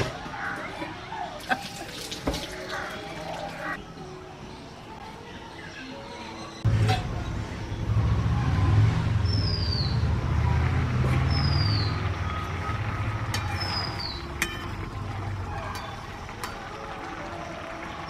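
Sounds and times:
lentils boiling in water: 0:10.2 - 0:18.0.

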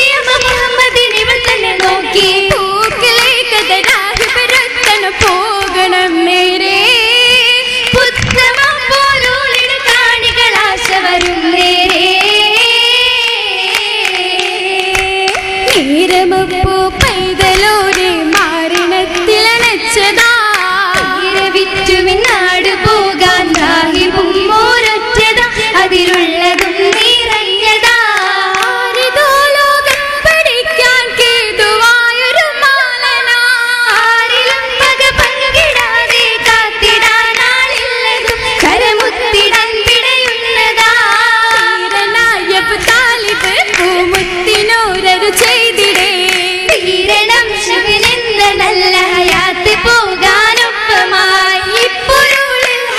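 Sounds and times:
girls singing: 0:00.0 - 0:52.9
rhythmic hand clapping: 0:00.0 - 0:52.9.

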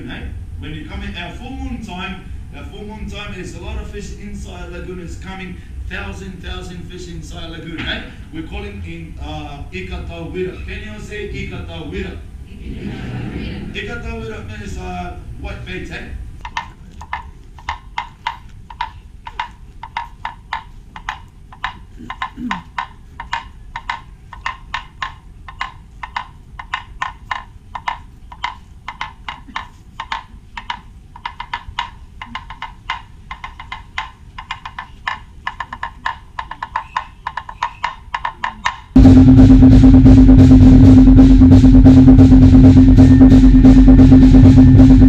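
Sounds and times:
hollow wooden knocks: 0:16.4 - 0:39.0.

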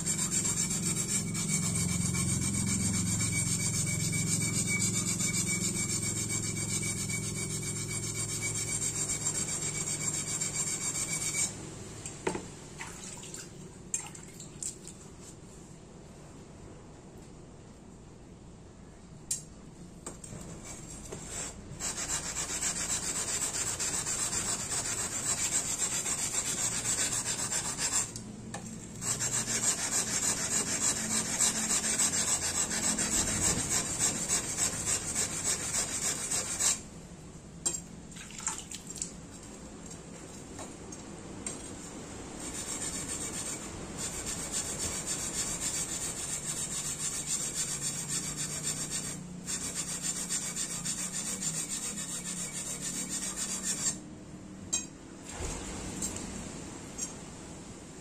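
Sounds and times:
blade scraping on whetstone: 0:00.0 - 0:11.5, 0:20.3 - 0:36.8, 0:42.4 - 0:54.0.

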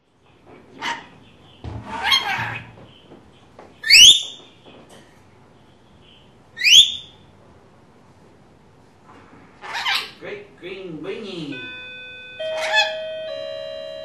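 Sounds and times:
lorikeet screeching: 0:03.8 - 0:04.4, 0:06.6 - 0:07.2, 0:09.6 - 0:10.2, 0:12.4 - 0:13.0
lorikeet shrill shrieks: 0:03.8 - 0:04.4, 0:06.6 - 0:07.1, 0:12.5 - 0:13.0.

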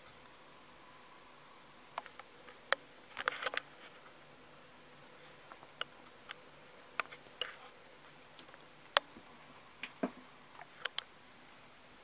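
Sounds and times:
faint steady hiss: 0:00.0 - 0:12.0
light clicks and ticks: 0:10.6 - 0:11.1.

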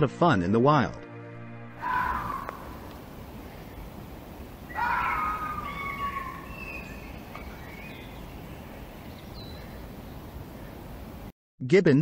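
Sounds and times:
fox calling: 0:01.8 - 0:03.9, 0:04.5 - 0:10.0
background hiss: 0:01.8 - 0:11.3.

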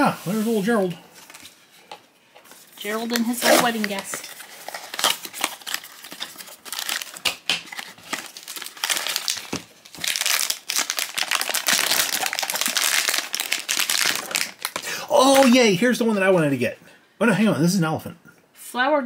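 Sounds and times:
foil bag crinkling: 0:02.6 - 0:15.6.

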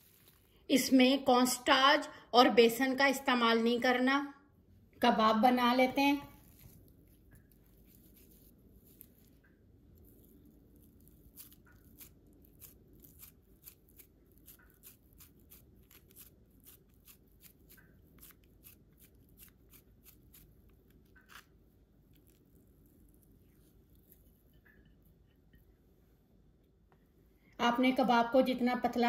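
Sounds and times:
low room hum: 0:00.0 - 0:29.0
clicks and squishes of meat: 0:06.3 - 0:24.8.

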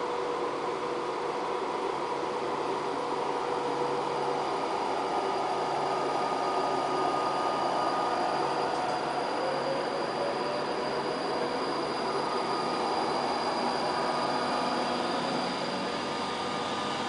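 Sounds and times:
train cooling fans rushing: 0:00.0 - 0:17.0.

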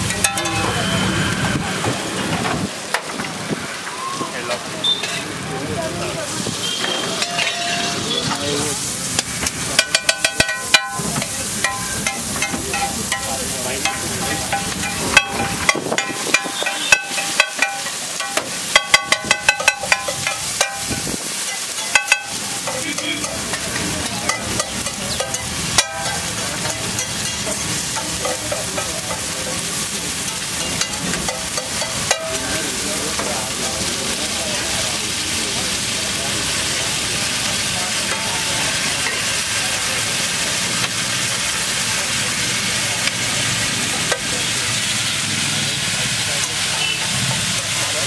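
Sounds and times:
metal spatula striking a griddle: 0:00.0 - 0:01.0, 0:06.8 - 0:08.0, 0:09.2 - 0:29.5, 0:30.2 - 0:33.3, 0:38.0 - 0:39.3
egg sizzling in oil: 0:06.4 - 0:48.0.

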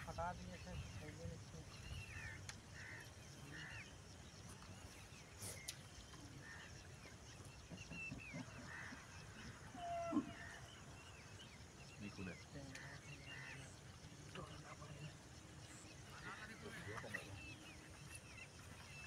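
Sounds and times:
faint animal calls: 0:04.8 - 0:19.0.

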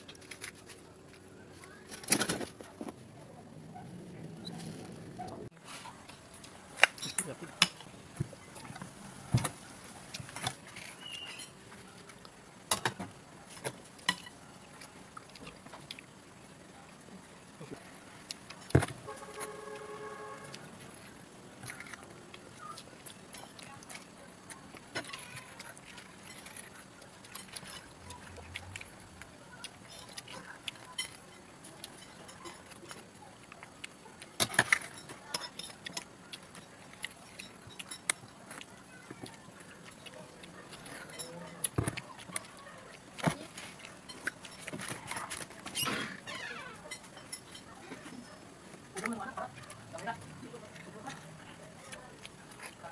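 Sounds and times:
utensils clinking on metal bowl: 0:46.9 - 0:47.8.

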